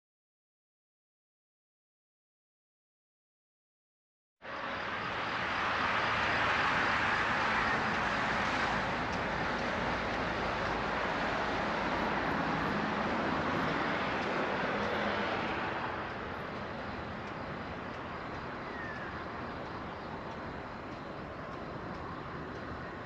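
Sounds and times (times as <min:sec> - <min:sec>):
passing vehicle hiss: 0:04.4 - 0:19.5
traffic hum: 0:04.4 - 0:23.0.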